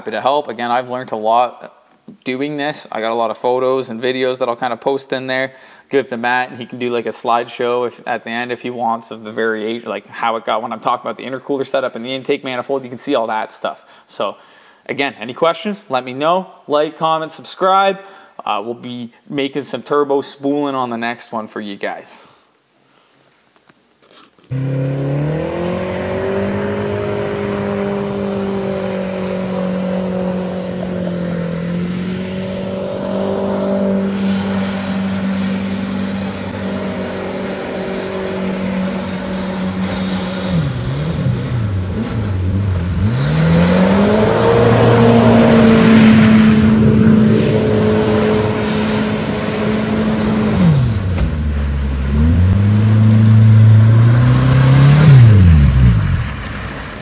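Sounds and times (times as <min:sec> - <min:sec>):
boat engine revving: 0:24.5 - 0:56.7.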